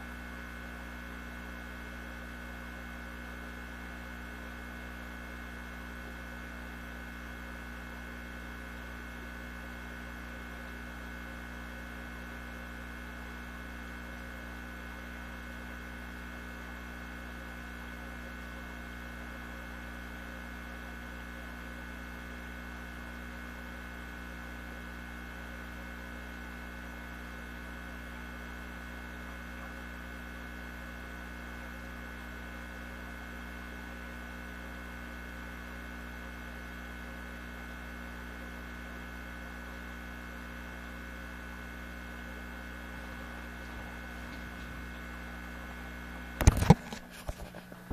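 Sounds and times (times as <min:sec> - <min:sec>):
buzzy electrical hum: 0:00.0 - 0:47.9.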